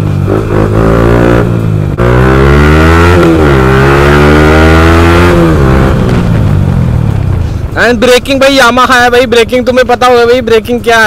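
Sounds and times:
motorcycle engine accelerating: 0.0s - 8.7s.

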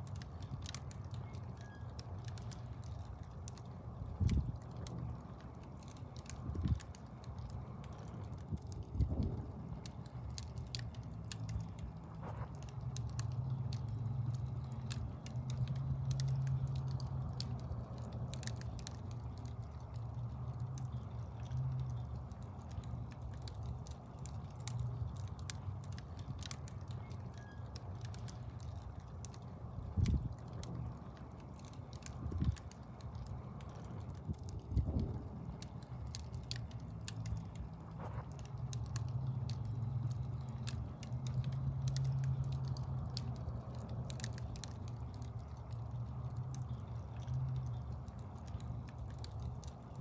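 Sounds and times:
fire crackling and popping: 0.0s - 50.0s.

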